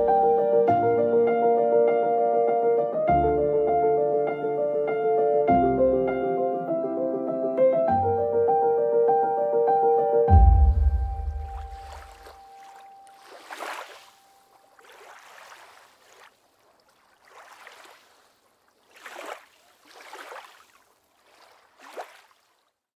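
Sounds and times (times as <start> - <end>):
small waves lapping against hull: 11.1 - 22.9.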